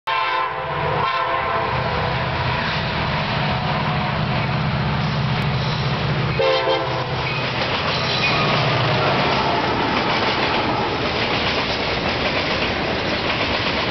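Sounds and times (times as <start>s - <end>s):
locomotive air horn: 0.1s - 2.1s, 6.4s - 7.2s
diesel locomotive rumble: 0.5s - 13.9s
train wheels on rails: 0.8s - 13.9s.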